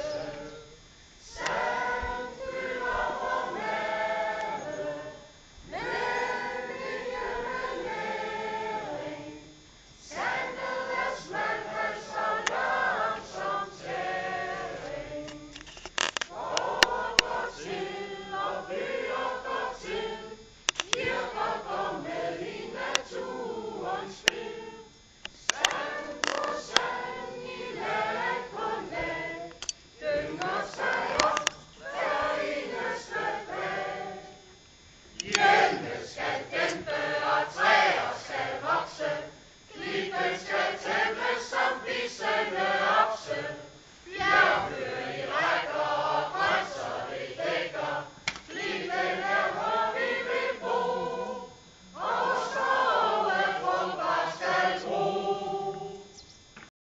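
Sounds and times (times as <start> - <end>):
choir singing unaccompanied: 0.0 - 56.7
sharp clicks: 15.3 - 17.3, 20.6 - 21.1, 25.2 - 26.9, 29.5 - 29.8, 30.4 - 31.7, 35.2 - 35.5, 48.2 - 48.5.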